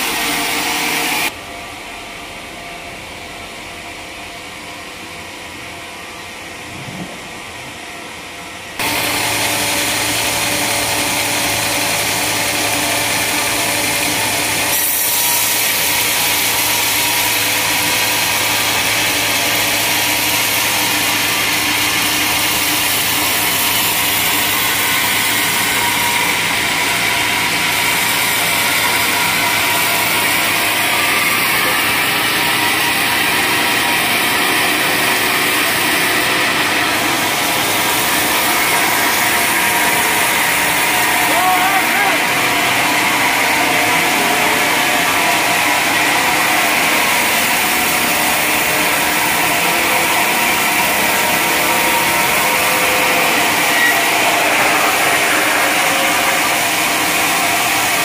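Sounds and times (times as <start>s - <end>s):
machine humming: 0.0s - 58.0s
saw blade hissing through wood: 12.4s - 17.6s.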